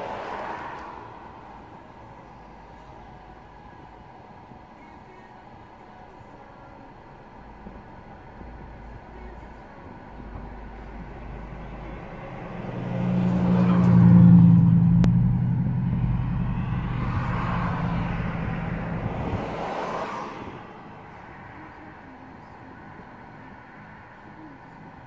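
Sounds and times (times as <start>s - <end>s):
vehicle driving past: 10.1s - 21.6s.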